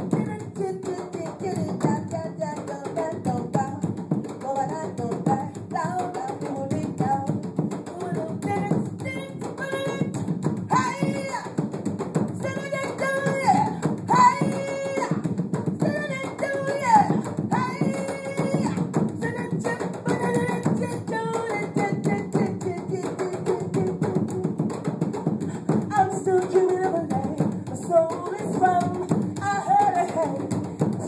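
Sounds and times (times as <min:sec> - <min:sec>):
hand drums playing: 0:00.0 - 0:31.0
woman singing long notes: 0:04.5 - 0:11.6, 0:12.4 - 0:24.6, 0:25.6 - 0:31.0.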